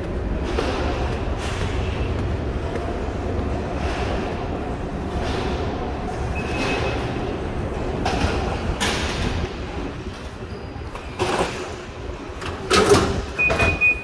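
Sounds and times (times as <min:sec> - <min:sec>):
faint footsteps: 0:00.0 - 0:11.1
low rumble of station concourse: 0:00.0 - 0:14.0.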